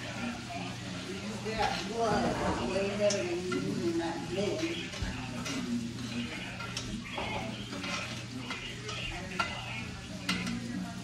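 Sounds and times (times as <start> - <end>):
steaks sizzling in a frying pan: 0.0 - 11.0
utensil scraping a pan: 1.3 - 11.0.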